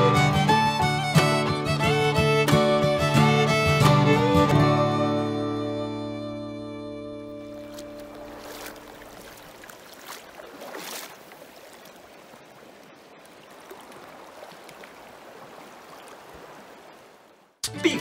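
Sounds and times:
river water rushing over gravel: 7.5s - 18.0s.

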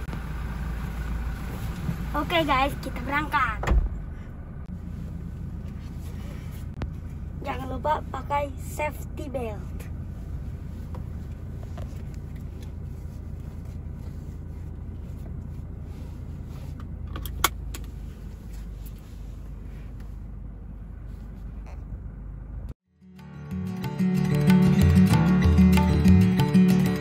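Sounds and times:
car cabin rumble: 0.0s - 22.8s
music: 22.9s - 27.0s.

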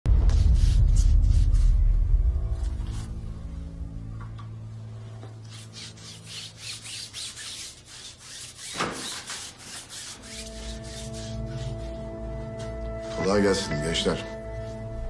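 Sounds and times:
paint rubbed onto wall by hand: 0.2s - 1.9s, 5.5s - 12.2s.

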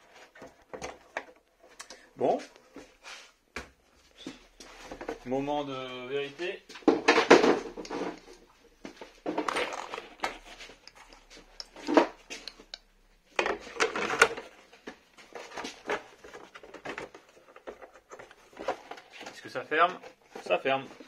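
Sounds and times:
plastic knocks clicks and scrapes: 0.0s - 2.0s, 6.7s - 21.0s.

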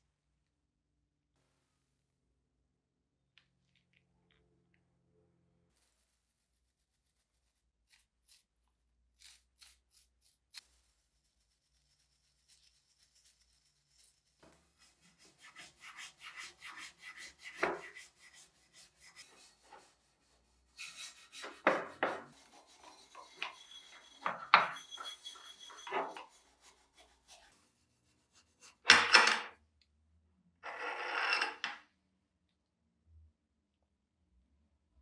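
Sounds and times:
wire brush scrubbing metal: 9.2s - 28.9s.

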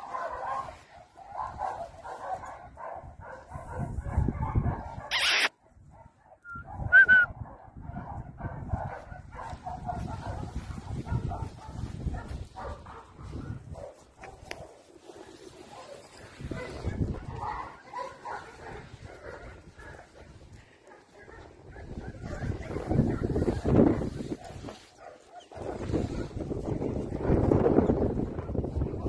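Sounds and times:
brief rush of noise: 5.1s - 5.5s
small dog yapping: 5.1s - 5.5s.

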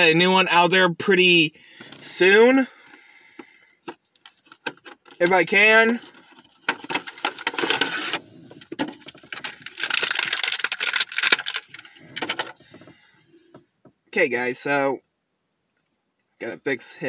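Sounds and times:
plastic packaging crinkling: 4.1s - 12.6s.

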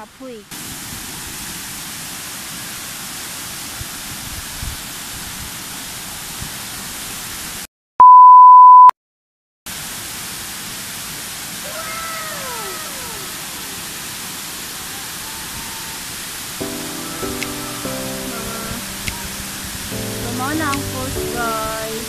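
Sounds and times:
waterfall rushing over rocks: 0.1s - 7.6s, 9.7s - 22.0s
censor bleep: 8.0s - 8.9s.

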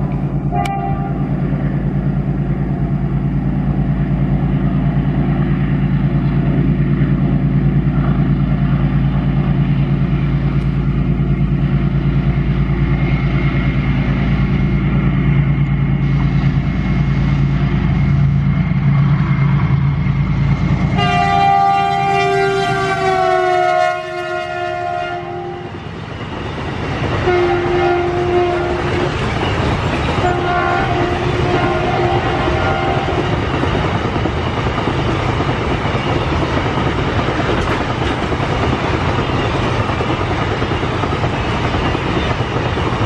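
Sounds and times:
diesel locomotive engine drone: 0.0s - 43.0s
locomotive horn blast: 0.5s - 1.3s, 21.0s - 25.7s, 27.2s - 29.2s, 30.2s - 33.2s.

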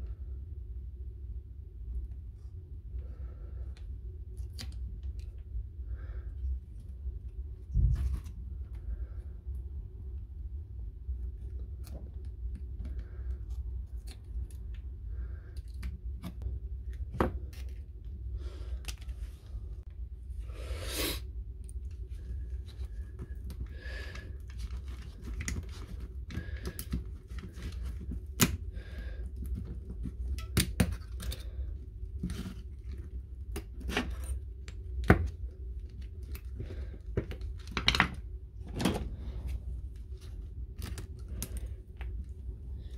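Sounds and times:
low hum: 0.0s - 42.9s.

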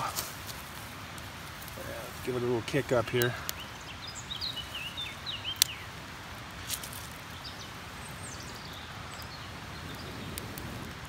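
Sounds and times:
campfire crackling: 0.0s - 11.0s
fire popping: 0.0s - 11.0s
outdoor background noise: 0.0s - 11.0s
bird chirping: 2.9s - 6.0s, 6.6s - 10.4s.

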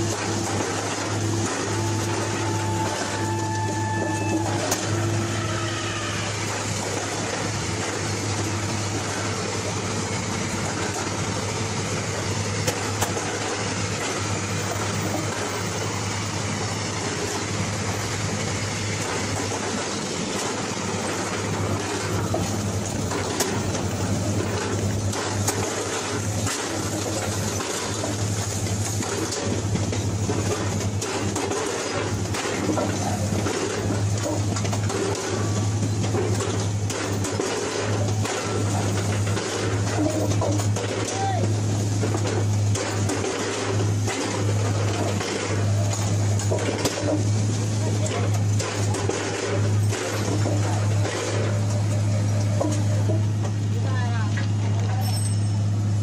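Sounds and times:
metallic clanks and knocks: 19.0s - 41.2s.

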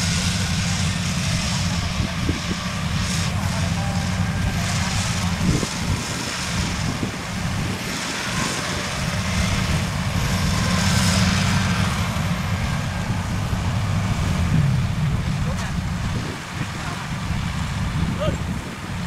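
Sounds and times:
combine harvester engine drone: 0.0s - 19.0s.

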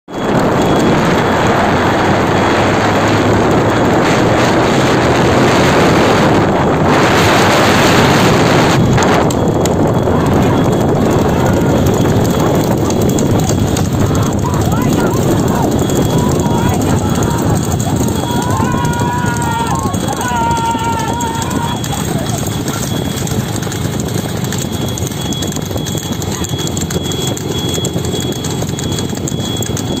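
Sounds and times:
vehicle road noise: 0.1s - 30.0s
wind on microphone: 0.1s - 30.0s
wooden wheels rolling: 0.1s - 30.0s
hooves clip-clopping on asphalt: 8.4s - 30.0s.

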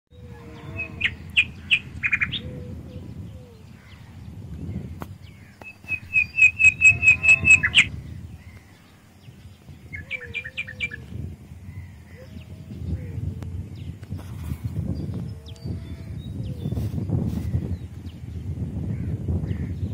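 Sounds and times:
bird chirping: 0.1s - 11.1s.

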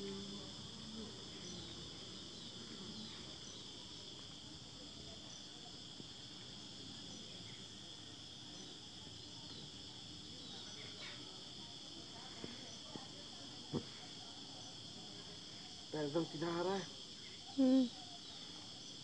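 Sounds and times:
insects chirping: 0.0s - 19.0s.

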